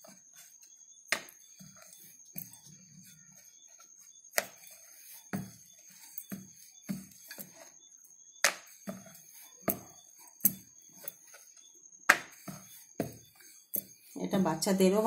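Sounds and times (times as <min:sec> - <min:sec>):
rolling pin knocking on wooden board: 0:05.3 - 0:05.6.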